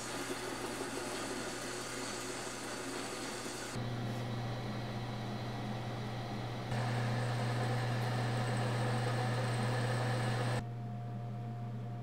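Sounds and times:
machine spindle humming: 0.0 - 10.7
drill bit cutting steel: 6.7 - 10.6.

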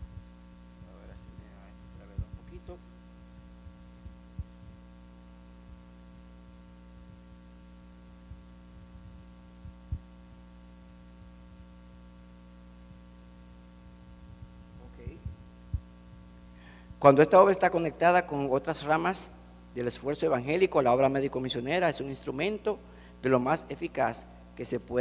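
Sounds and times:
soft low thumps: 0.0 - 6.0, 8.2 - 10.4, 14.0 - 16.4
electrical mains hum: 0.0 - 25.0.

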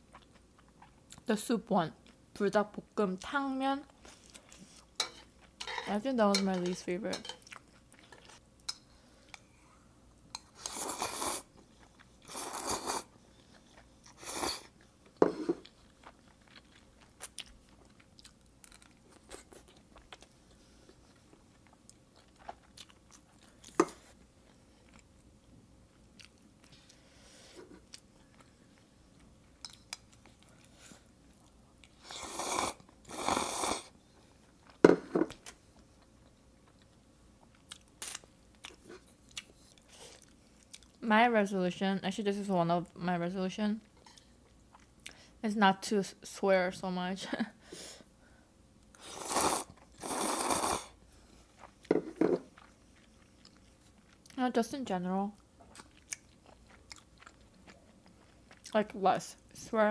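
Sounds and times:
chewing noodles: 15.6 - 25.2, 25.9 - 27.0, 52.5 - 54.4, 55.4 - 58.8
loud slurps: 49.0 - 50.9.

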